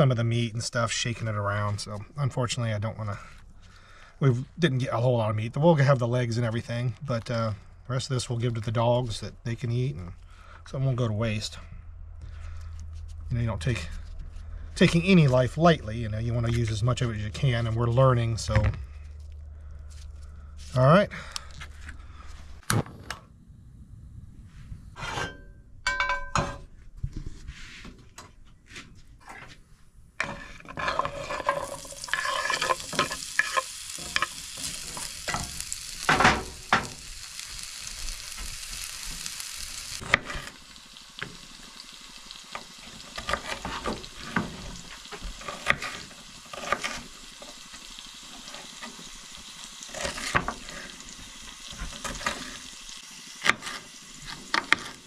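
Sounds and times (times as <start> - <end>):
potatoes sizzling in a skillet: 30.4 - 55.0.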